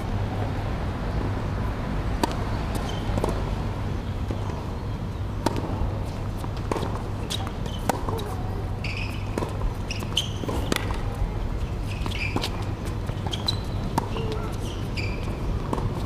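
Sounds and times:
tennis ball struck by rackets: 2.2s - 3.4s, 5.4s - 5.8s, 6.5s - 8.4s, 9.0s - 11.2s, 11.9s - 14.9s
ball bouncing on hard court: 6.7s - 11.1s.

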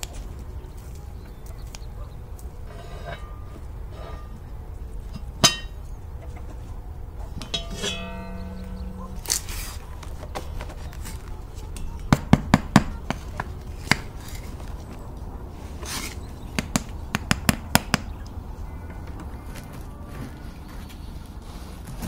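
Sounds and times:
bread knocking on cast iron pot: 5.4s - 5.8s.

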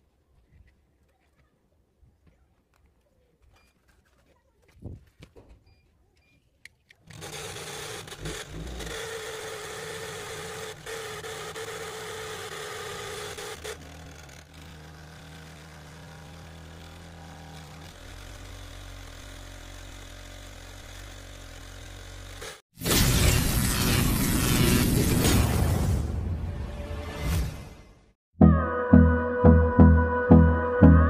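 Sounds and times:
small electric motor humming: 7.0s - 22.5s.

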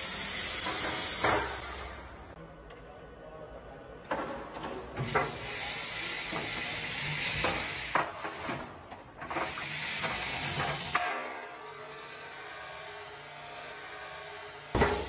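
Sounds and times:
machine hissing mechanical noise: 0.0s - 2.3s, 5.0s - 8.6s, 9.2s - 15.0s.

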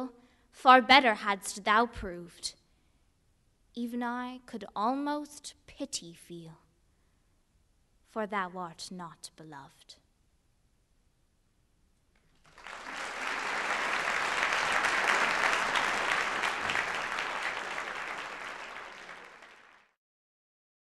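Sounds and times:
audience applauding: 12.3s - 20.0s.

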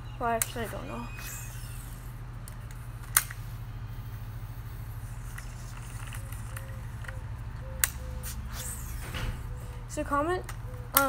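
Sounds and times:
steady low hum: 0.0s - 11.0s
fishing reel clicks: 0.4s - 2.1s.

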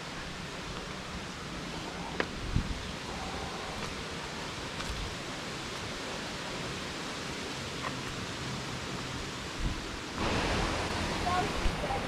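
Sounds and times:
distant flowing water: 0.0s - 12.0s
footsteps on a trail: 3.7s - 5.2s.

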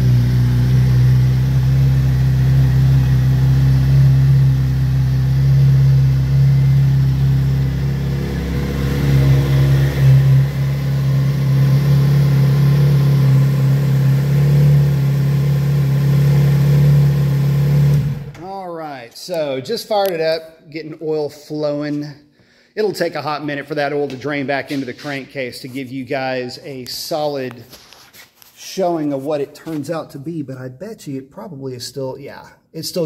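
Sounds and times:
motorcycle engine idling: 0.0s - 17.6s.

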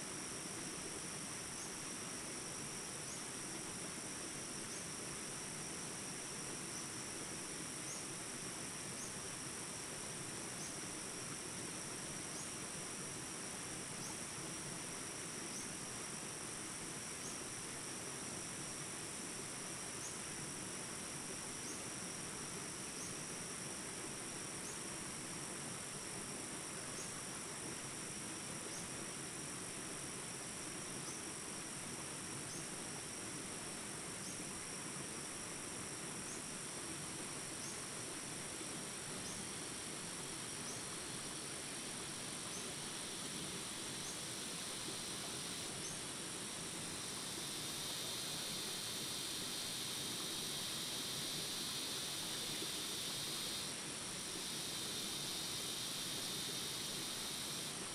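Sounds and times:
insects droning: 0.0s - 57.9s.

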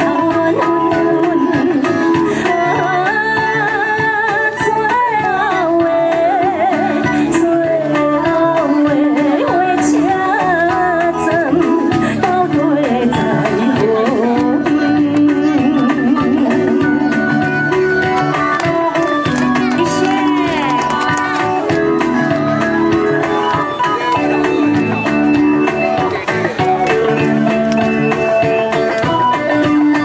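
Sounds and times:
woman singing with vibrato: 0.0s - 17.2s, 18.4s - 22.0s
live band accompaniment: 0.0s - 30.0s.

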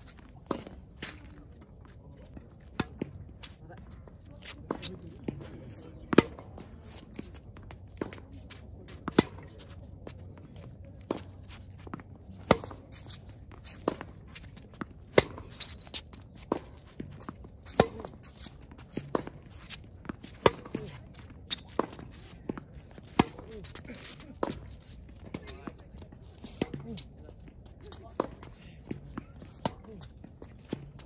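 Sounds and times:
tennis ball bouncing: 4.4s - 9.6s, 11.0s - 27.2s, 27.9s - 31.0s.

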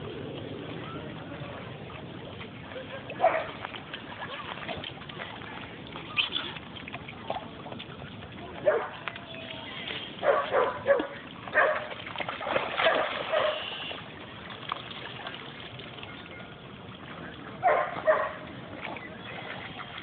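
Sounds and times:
water splashing and lapping: 0.0s - 20.0s
dog barking: 3.2s - 3.5s, 10.2s - 11.9s, 12.8s - 13.7s, 17.6s - 18.4s.

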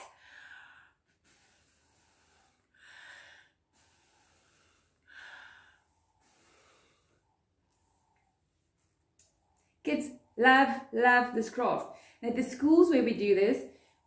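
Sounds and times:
quick in-breaths: 0.2s - 8.2s.

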